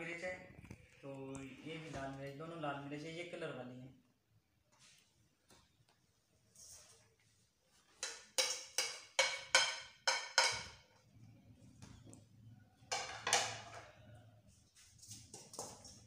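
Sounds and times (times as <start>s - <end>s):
metal spoon clinking on dishes: 8.0s - 10.8s.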